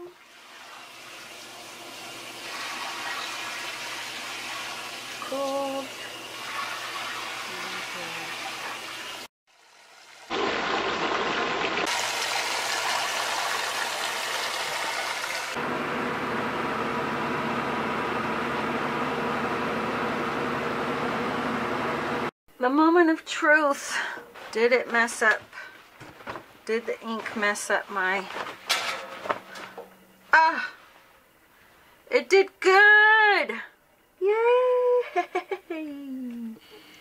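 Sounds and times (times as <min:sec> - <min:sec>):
water rushing into washing machine: 0:00.0 - 0:15.6.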